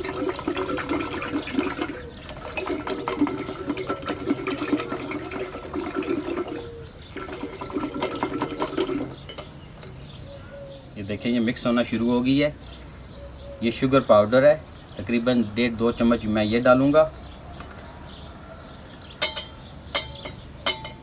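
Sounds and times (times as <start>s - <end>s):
churner sloshing liquid in pot: 0.0s - 9.6s.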